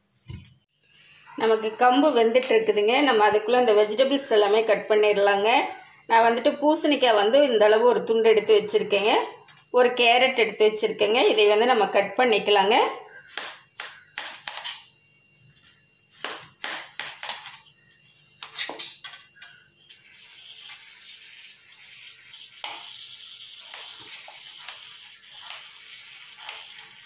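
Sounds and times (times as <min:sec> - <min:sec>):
steady hiss: 0:00.7 - 0:04.8, 0:13.4 - 0:27.0.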